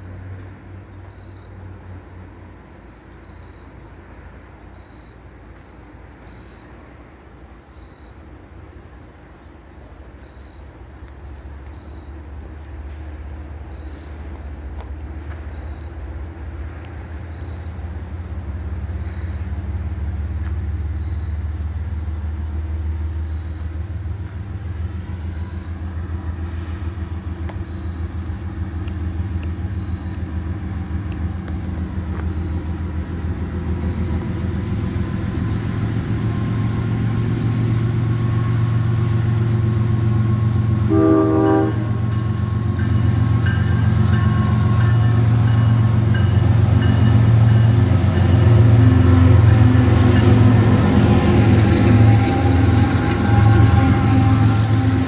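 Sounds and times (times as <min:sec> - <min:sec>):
diesel locomotive engine drone: 0:00.0 - 0:55.0
train horn blast: 0:39.9 - 0:46.4, 0:47.3 - 0:55.0.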